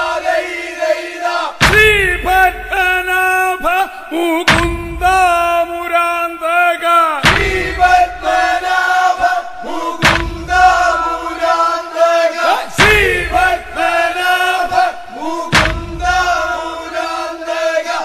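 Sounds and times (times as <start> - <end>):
chorus of voices chanting: 0.0 - 18.0
deep thuds: 1.5 - 3.1, 4.5 - 5.7, 7.2 - 8.7, 9.7 - 11.2, 12.7 - 16.8.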